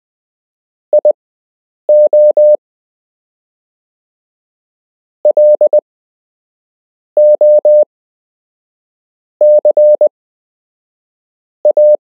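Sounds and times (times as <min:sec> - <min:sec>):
morse code beeps: 0:01.9 - 0:02.6, 0:05.3 - 0:05.8, 0:07.2 - 0:07.8, 0:09.4 - 0:10.1, 0:11.7 - 0:12.0.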